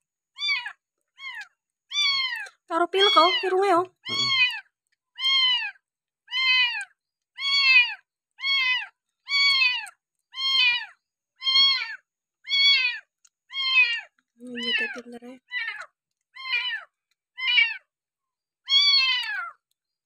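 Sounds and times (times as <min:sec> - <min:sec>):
kitten mewing: 0:03.0 - 0:04.6.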